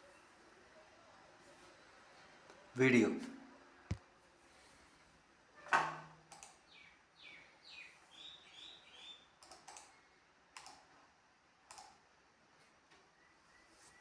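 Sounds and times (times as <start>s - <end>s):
sharp clicks: 6.3s - 6.6s, 9.4s - 9.9s, 10.6s - 10.8s, 11.7s - 12.0s.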